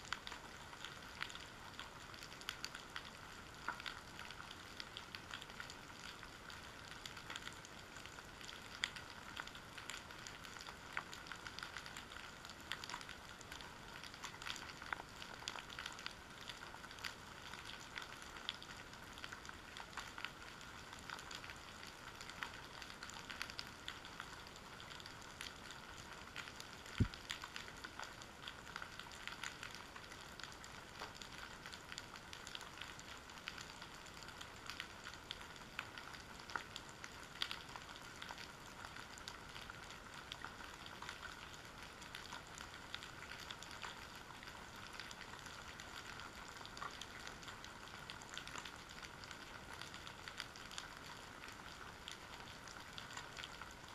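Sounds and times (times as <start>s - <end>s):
underwater clicks and pops: 27.0s - 27.2s.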